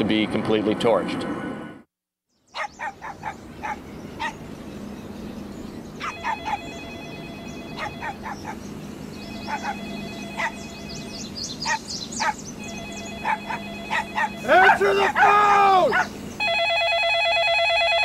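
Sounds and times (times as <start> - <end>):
birds chirping: 2.3 - 16.6
telephone ringing: 6.1 - 8.4, 9.2 - 11.4, 12.6 - 15.1, 16.4 - 18.0.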